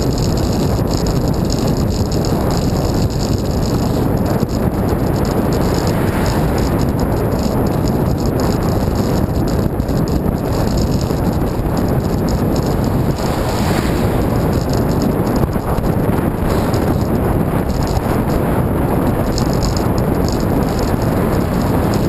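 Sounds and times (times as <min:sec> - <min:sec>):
wind buffeting microphone: 0:00.0 - 0:22.0.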